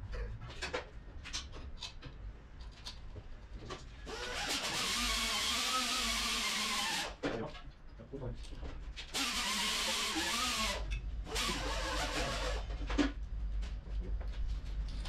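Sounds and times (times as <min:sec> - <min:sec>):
power tool running: 0:04.1 - 0:07.2, 0:09.1 - 0:12.7.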